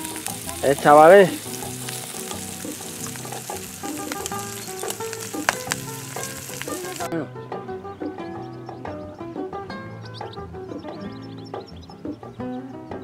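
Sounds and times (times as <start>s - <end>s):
meat sizzling in frying pan: 0.0s - 7.1s
background music: 0.0s - 13.0s
fat spitting pops: 1.3s - 7.1s.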